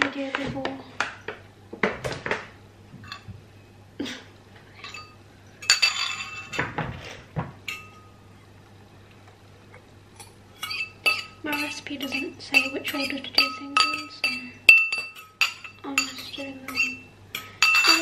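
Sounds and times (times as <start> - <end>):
metal utensil scraping ceramic bowl: 10.2 - 18.0.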